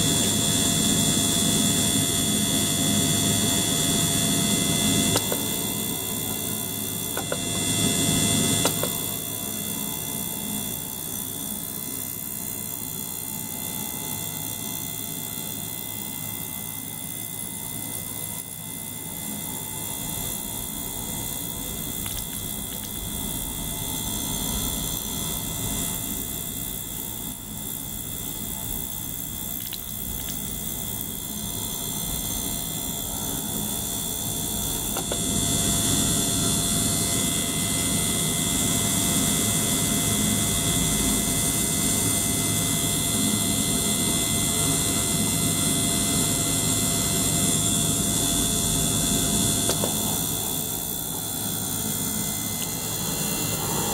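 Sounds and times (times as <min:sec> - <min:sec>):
ultrasonic cleaner humming: 0:00.0 - 0:39.9, 0:45.1 - 0:53.9
circulation pump pushing water: 0:04.9 - 0:35.8, 0:49.5 - 0:53.9.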